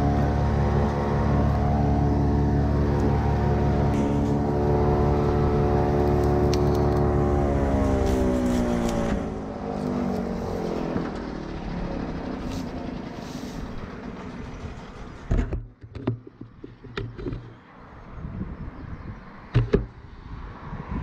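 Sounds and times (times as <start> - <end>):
vehicle engine passing: 0.0 - 15.4
sharp clicks and knocks: 15.3 - 17.6.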